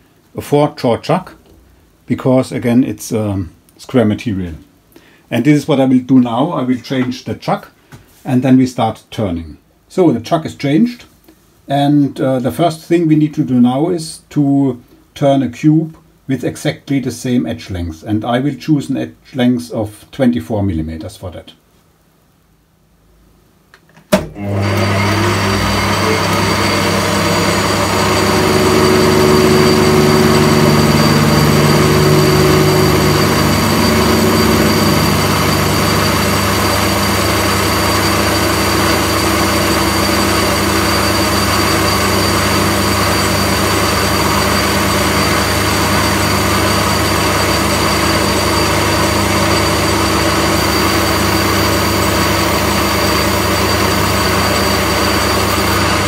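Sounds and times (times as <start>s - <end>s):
metal lathe motor humming: 24.6s - 56.0s.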